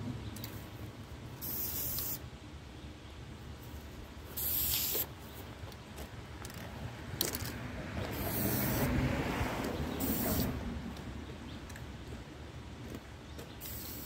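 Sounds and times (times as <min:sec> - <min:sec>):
spray paint can hissing: 0:01.4 - 0:02.3, 0:04.3 - 0:05.2, 0:08.0 - 0:09.0, 0:10.0 - 0:10.6, 0:13.6 - 0:14.0
car passing: 0:06.7 - 0:11.6.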